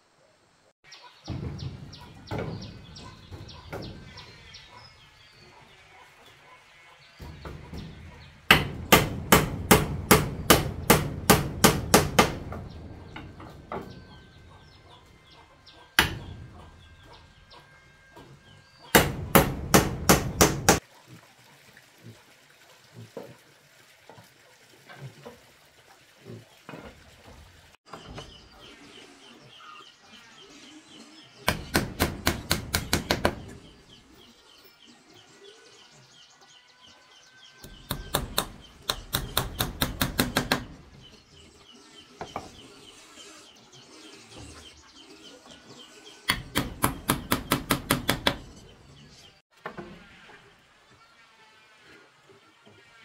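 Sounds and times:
birds chirping faintly: 0.0 - 20.8, 27.8 - 53.0
hand tool knocking: 7.3 - 14.8, 16.0 - 17.2, 18.9 - 20.8, 31.5 - 33.6, 37.6 - 40.8, 46.3 - 48.5.

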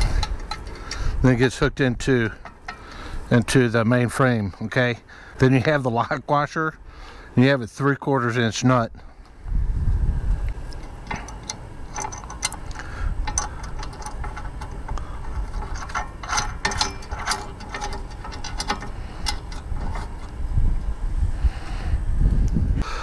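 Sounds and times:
ratchet wrench clicking: 10.7 - 20.3.

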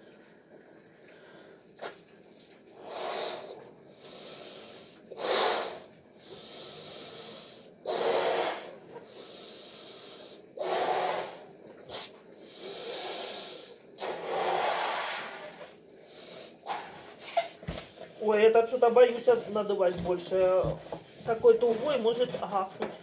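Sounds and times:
person breathing: 2.8 - 17.2
blowing into balloon: 10.6 - 17.8.

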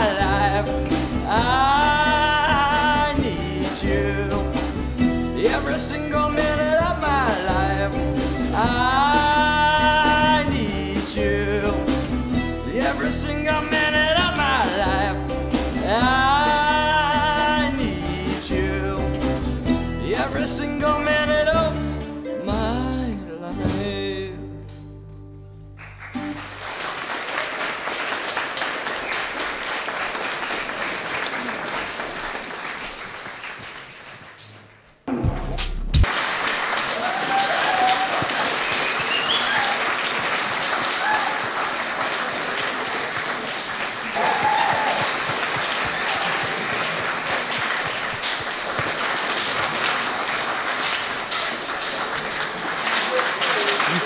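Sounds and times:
audience applause: 25.8 - 34.9, 36.0 - 54.0.

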